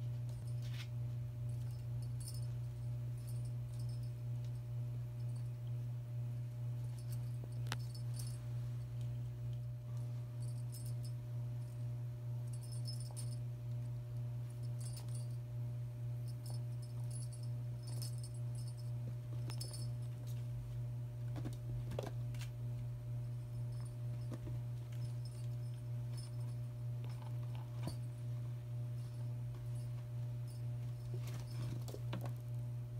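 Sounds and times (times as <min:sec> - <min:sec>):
steady low hum: 0:00.0 - 0:32.9
small bell jingling: 0:01.5 - 0:04.6, 0:06.8 - 0:08.4, 0:10.4 - 0:11.8, 0:12.4 - 0:13.5, 0:14.5 - 0:15.4, 0:16.2 - 0:20.2, 0:23.2 - 0:28.3, 0:29.0 - 0:32.1.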